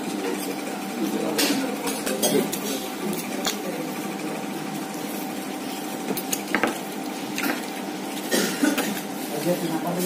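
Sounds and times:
steady mechanical hum: 0.0 - 10.0.

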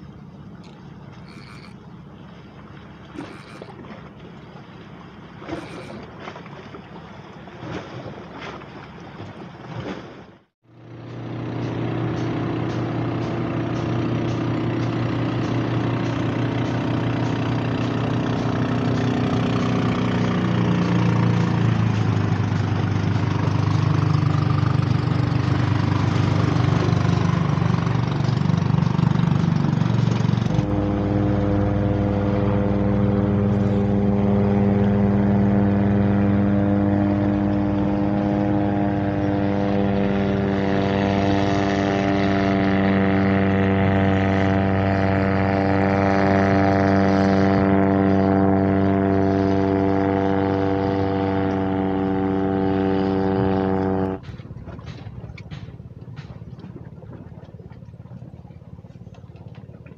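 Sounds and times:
motorboat engine droning: 0.0 - 59.9
small clicks: 0.6 - 1.8.

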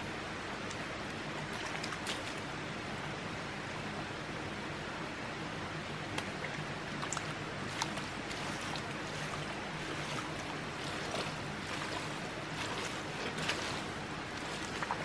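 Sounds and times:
steady water noise: 0.0 - 3.3, 5.8 - 15.0
small splashes: 1.3 - 2.5, 6.1 - 15.0.

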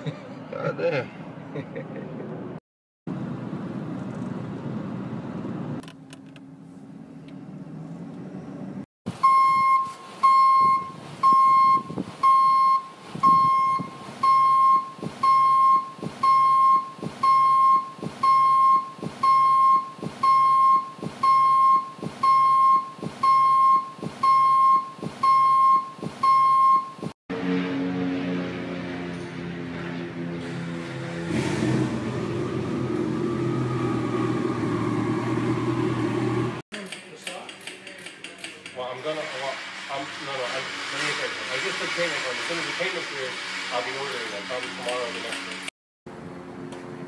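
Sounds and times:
car road noise: 1.2 - 9.2, 27.3 - 36.6.

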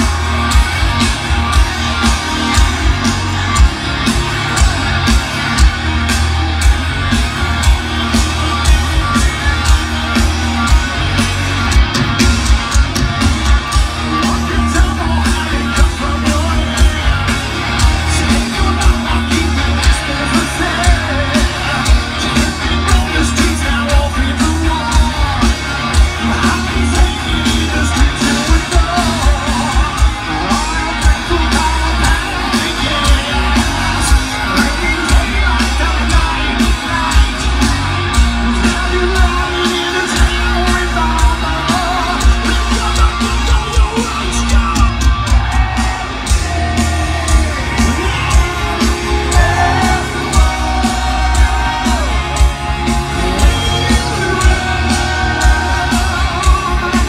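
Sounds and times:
distorted guitars: 0.0 - 57.0
heavy bass: 0.0 - 57.0
pounding drum beat: 0.0 - 57.0
lead vocal singing: 13.0 - 57.0.

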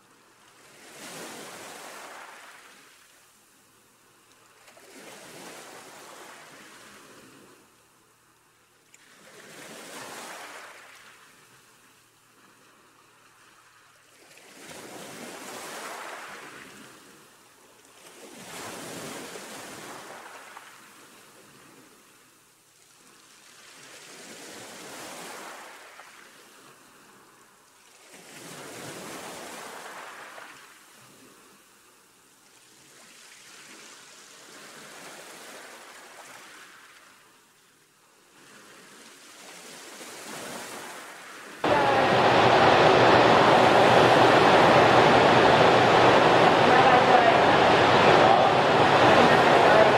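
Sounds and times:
ocean waves washing: 41.6 - 49.9.

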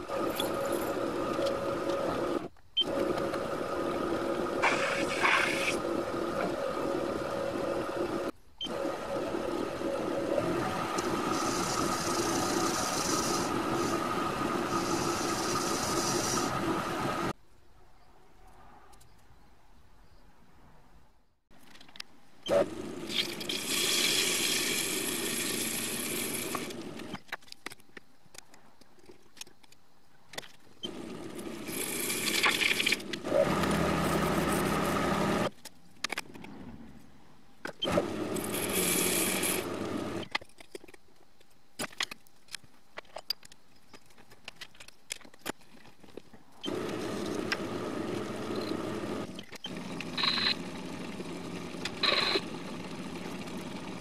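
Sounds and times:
lathe turning metal: 0.0 - 17.3.

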